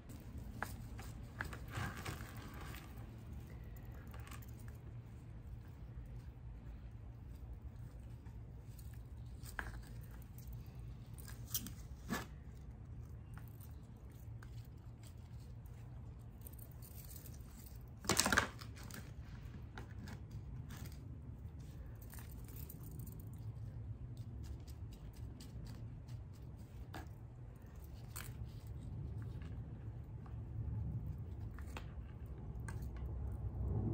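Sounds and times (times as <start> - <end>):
soil rustling: 0.0 - 18.0.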